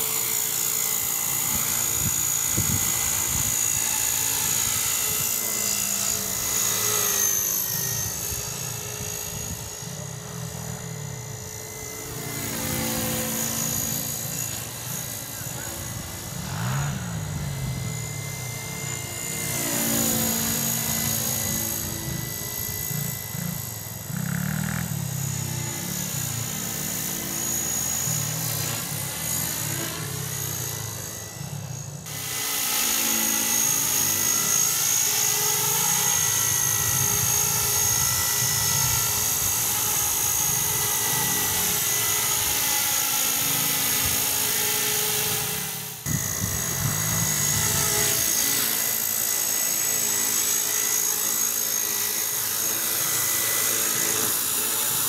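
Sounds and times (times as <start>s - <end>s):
rc helicopter motor whine: 0.0s - 55.0s.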